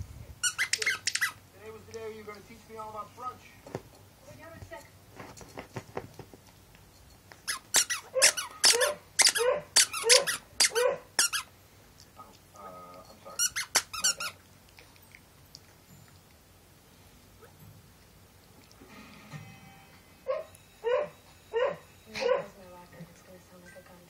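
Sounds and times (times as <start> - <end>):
squeaker toy squeaking: 0.4 - 1.4, 7.4 - 11.5, 13.3 - 14.4.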